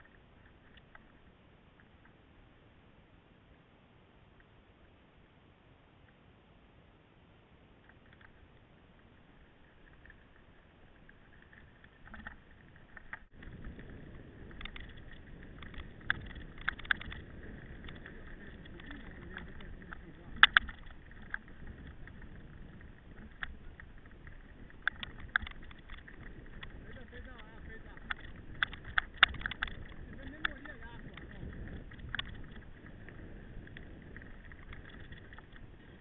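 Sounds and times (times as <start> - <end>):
bike clicks and rattles: 0.0 - 1.2, 7.8 - 36.0
wind on microphone: 9.4 - 36.0
tyres rumbling on rough track: 11.6 - 36.0.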